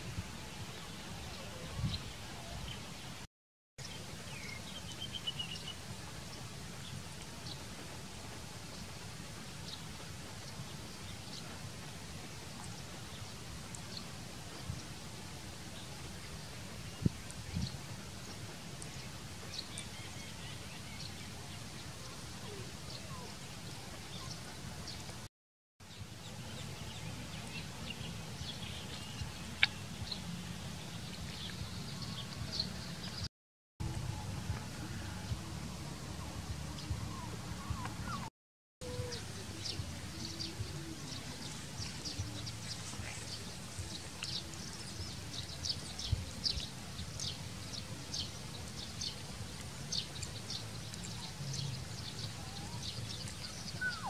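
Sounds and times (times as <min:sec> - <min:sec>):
low outdoor rumble: 0:33.8 - 0:54.0.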